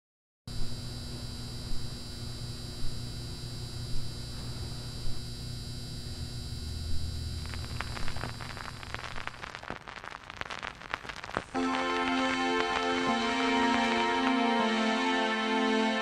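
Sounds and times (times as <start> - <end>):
vinyl crackle: 0.5 - 16.0
vinyl record hum and hiss: 0.5 - 16.0
soft record clicks: 6.8 - 14.7.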